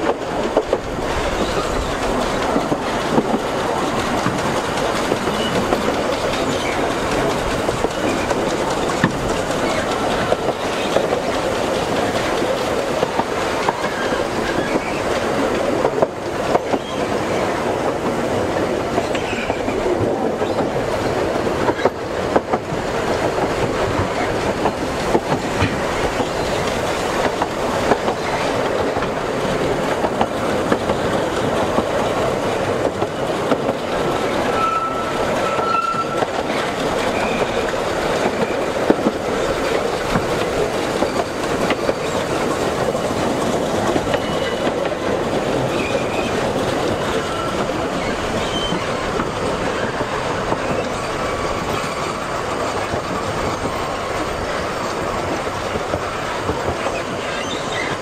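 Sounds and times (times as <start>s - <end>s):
train wheels rumbling and clattering: 0.0s - 58.0s
high wheel squeals: 34.4s - 37.6s, 44.1s - 44.6s, 47.2s - 49.0s, 49.8s - 55.1s, 56.8s - 58.0s.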